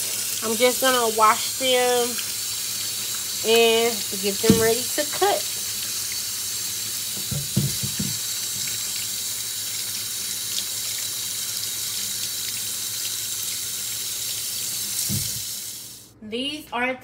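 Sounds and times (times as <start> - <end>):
hands scrubbing potatoes: 0.0 - 15.6
tap running into metal sink: 4.3 - 5.3, 7.1 - 8.8, 15.0 - 15.5.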